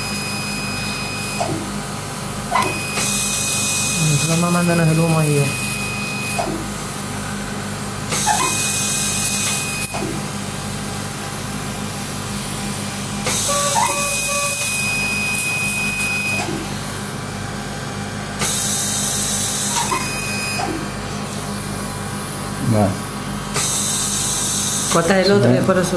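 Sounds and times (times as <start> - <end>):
laser beeping and hissing: 2.8 - 6.4, 13.3 - 16.4.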